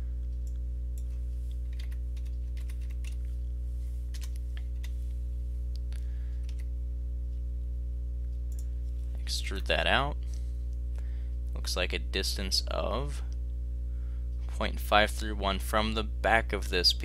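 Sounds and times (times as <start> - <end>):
steady low hum: 0.0 - 17.0
computer keystrokes: 0.4 - 3.2, 4.1 - 5.0, 6.4 - 6.7.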